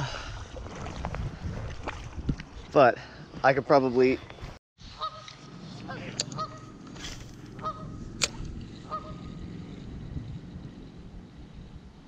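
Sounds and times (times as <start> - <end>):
goose honking: 5.0 - 5.3, 5.9 - 6.7, 7.6 - 8.0, 8.8 - 9.3.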